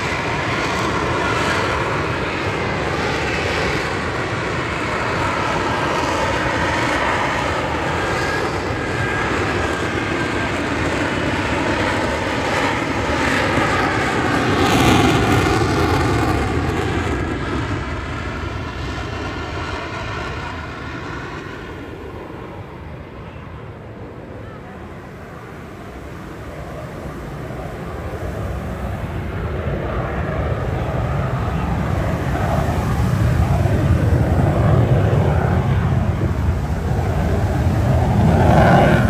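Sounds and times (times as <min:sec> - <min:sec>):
jet engine roar: 0:00.0 - 0:39.0.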